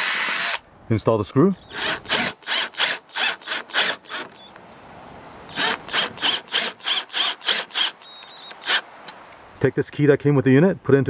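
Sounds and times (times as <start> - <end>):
cordless drill driving screws: 0.0 - 0.6, 1.6 - 4.6, 5.5 - 8.9.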